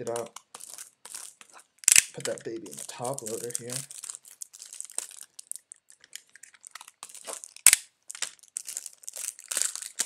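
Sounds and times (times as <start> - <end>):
plastic crinkling: 0.0 - 10.0.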